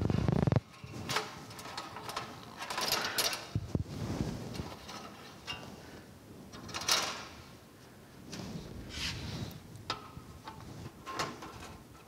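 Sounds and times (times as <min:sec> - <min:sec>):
light rustles of hands: 0:03.5 - 0:06.1, 0:07.8 - 0:09.8.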